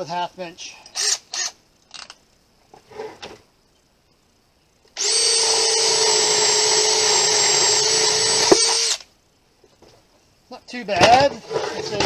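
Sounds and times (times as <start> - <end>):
cordless drill boring wood: 1.0 - 1.5, 5.0 - 9.1.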